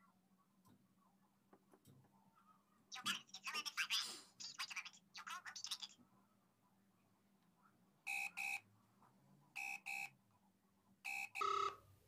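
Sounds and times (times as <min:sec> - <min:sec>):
phone ringing tone double beeps: 0:11.1 - 0:11.8.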